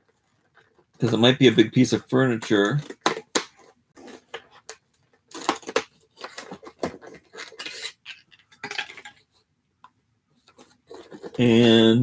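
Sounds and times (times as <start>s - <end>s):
toy packaging being opened: 2.3s - 9.2s
plastic pieces rattling: 5.3s - 9.2s.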